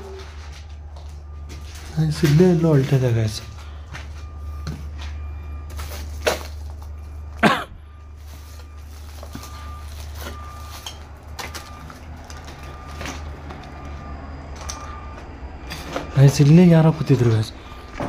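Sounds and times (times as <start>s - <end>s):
footsteps: 0.0s - 7.2s.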